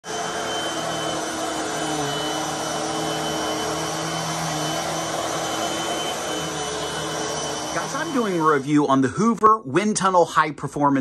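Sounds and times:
vacuum cleaner on carpet: 0:00.0 - 0:08.8
high whine: 0:00.2 - 0:08.7.

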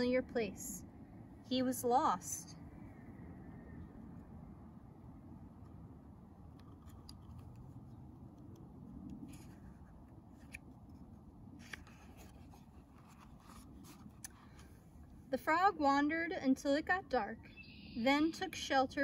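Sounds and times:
faint outdoor rumble: 0:00.0 - 0:19.0
paper page turning: 0:11.6 - 0:14.7.

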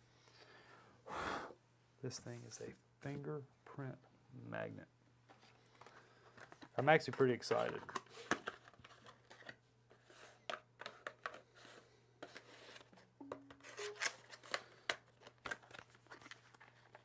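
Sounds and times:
packaging clicks and rustles: 0:05.6 - 0:13.1, 0:13.9 - 0:17.0.

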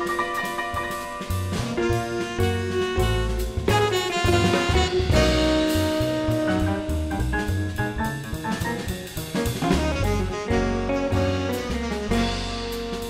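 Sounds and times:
bass: 0:00.0 - 0:13.0
drum kit: 0:00.0 - 0:13.0
piano: 0:00.0 - 0:13.0
saxophone: 0:01.5 - 0:08.0, 0:09.6 - 0:13.0.

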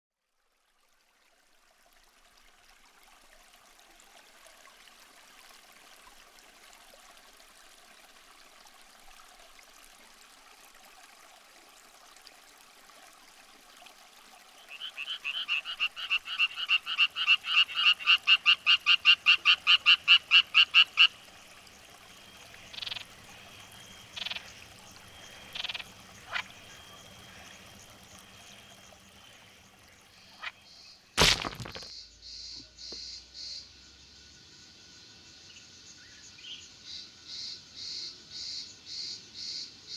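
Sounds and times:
faint steady hiss: 0:00.4 - 0:31.4
frog croaking: 0:14.6 - 0:21.3, 0:22.6 - 0:30.6.

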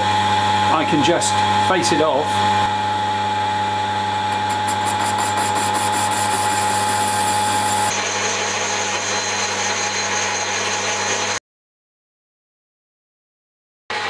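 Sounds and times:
metal lathe humming and whining: 0:02.3 - 0:11.4.

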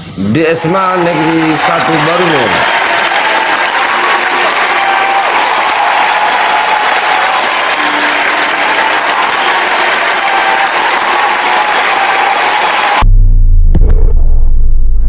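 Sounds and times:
crowd applause: 0:00.6 - 0:13.0
deep low throbbing: 0:13.0 - 0:15.0.

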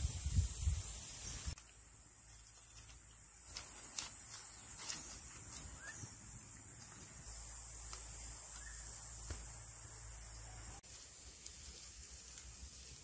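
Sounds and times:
campfire hissing: 0:00.0 - 0:02.2, 0:05.6 - 0:13.0.

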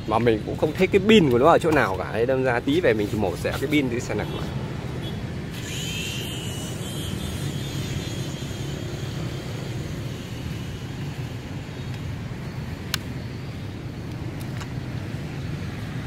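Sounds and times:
distant engine drone: 0:04.6 - 0:16.0
small electric motor whine: 0:05.5 - 0:12.8.

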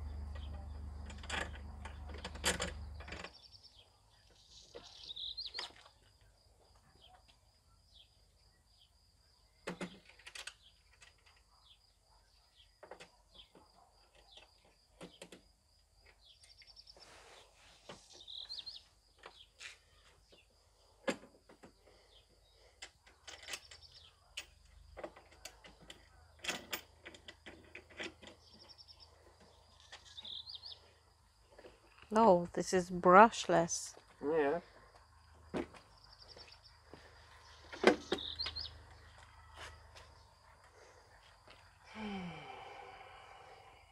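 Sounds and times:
clicks and knocks of parts handled: 0:22.8 - 0:28.4
faint bird chirps: 0:35.9 - 0:40.3.

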